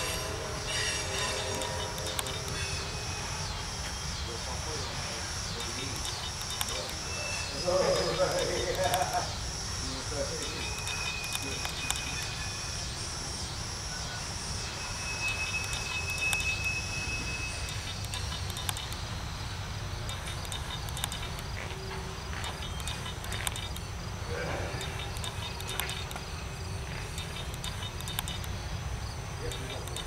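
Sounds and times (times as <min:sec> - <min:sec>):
freight train wheels rumbling on rail: 0:00.0 - 0:04.0
insects trilling: 0:00.0 - 0:30.0
sharp clicks: 0:01.2 - 0:02.7, 0:05.5 - 0:09.4, 0:10.3 - 0:12.4, 0:15.3 - 0:16.8, 0:17.6 - 0:19.1, 0:20.0 - 0:24.0, 0:24.7 - 0:28.6, 0:29.4 - 0:30.0.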